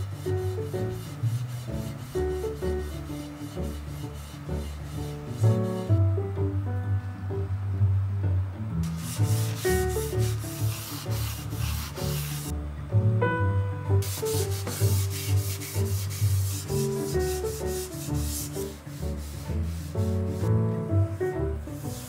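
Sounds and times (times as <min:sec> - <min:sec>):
paper towel wiping metal: 0:00.0 - 0:06.0, 0:08.8 - 0:12.5, 0:14.0 - 0:20.5
soft background music: 0:00.0 - 0:22.0.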